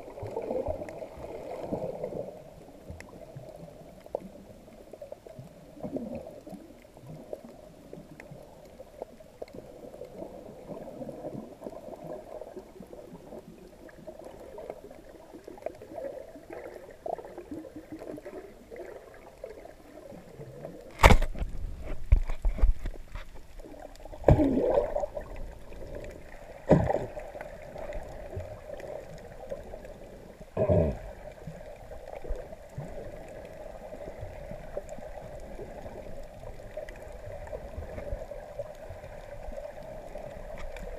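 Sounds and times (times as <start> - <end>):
muffled underwater churning: 0.0 - 40.9
water sloshing: 8.2 - 40.9.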